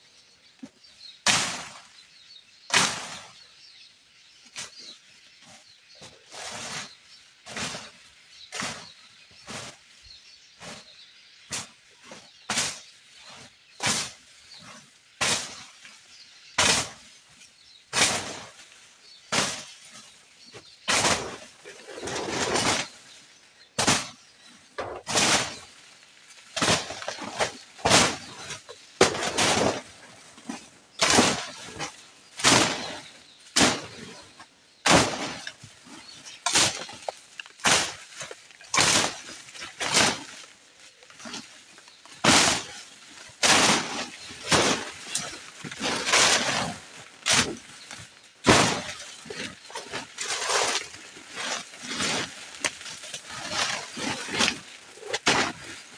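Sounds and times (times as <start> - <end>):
blade cutting vegetation: 17.9 - 23.1, 23.7 - 55.9.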